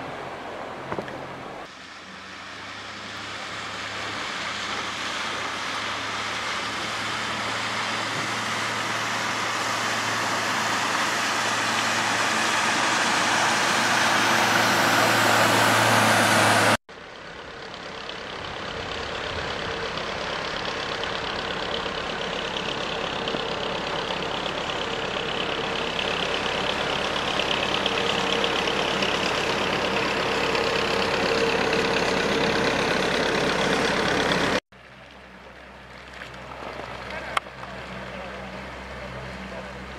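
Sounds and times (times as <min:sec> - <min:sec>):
larger motorboat engine hum: 0:00.0 - 0:39.9
motorboat engine running: 0:00.6 - 0:39.9.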